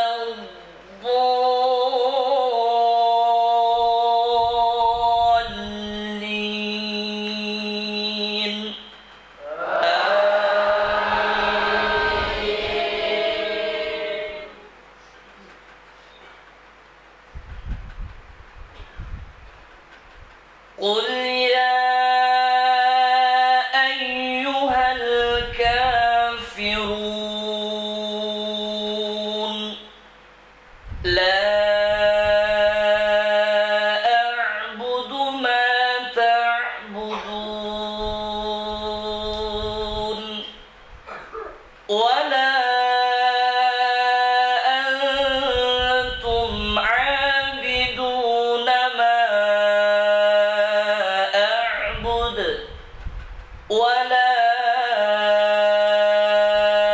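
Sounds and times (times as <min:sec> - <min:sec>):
man chanting: 0:00.0 - 0:14.7, 0:20.8 - 0:29.9, 0:31.1 - 0:52.9, 0:53.7 - 0:56.9.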